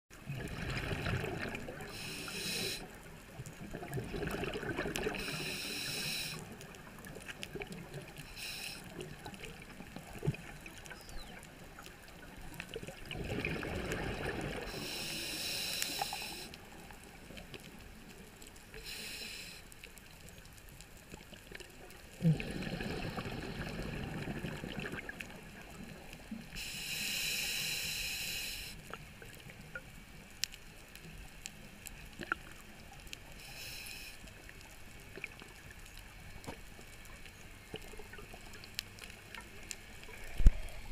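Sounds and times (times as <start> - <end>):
exhaled bubbles rumbling underwater: 0.1 - 5.7, 6.4 - 8.2, 8.9 - 15.0, 21.2 - 26.5, 34.6 - 40.9
regulator hissing: 5.2 - 6.4.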